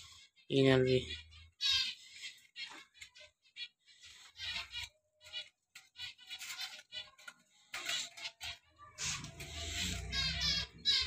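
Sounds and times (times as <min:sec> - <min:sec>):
budgerigars chirping: 0:00.0 - 0:06.8, 0:09.0 - 0:11.0.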